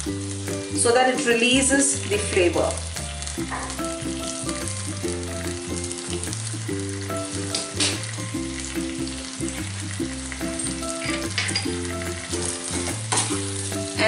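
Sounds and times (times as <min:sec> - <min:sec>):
background music with bass line: 0:00.0 - 0:14.0
chicken sizzling in pan: 0:00.0 - 0:14.0.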